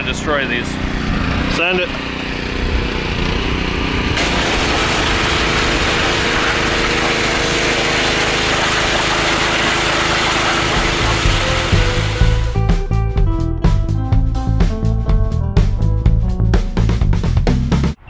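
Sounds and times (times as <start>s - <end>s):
pressure washer engine running: 0.0s - 12.6s
high-pressure water spray hissing: 4.2s - 12.6s.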